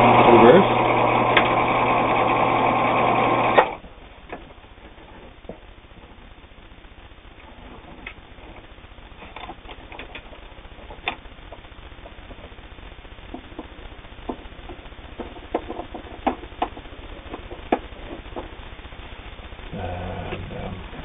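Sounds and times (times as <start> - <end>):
sewing machine humming: 0.0 - 3.8.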